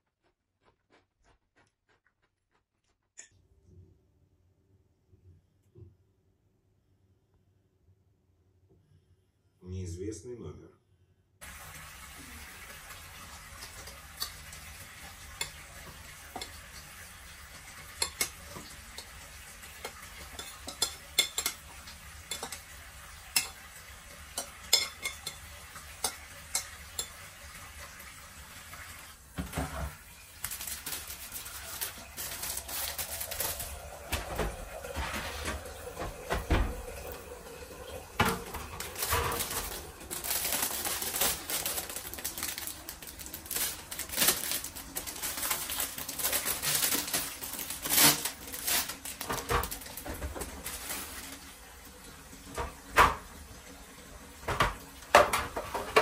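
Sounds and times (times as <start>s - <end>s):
dishes and utensils clinking: 15.3s - 16.6s, 17.5s - 22.7s, 23.3s - 27.3s, 31.5s - 36.8s, 38.2s - 41.7s, 54.5s - 56.0s
plastic packet crinkling: 30.3s - 34.1s, 38.7s - 51.4s.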